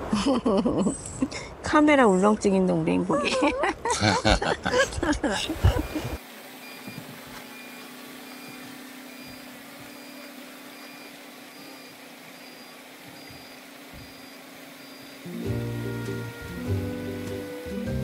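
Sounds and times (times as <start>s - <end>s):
music: 15.3s - 18.0s.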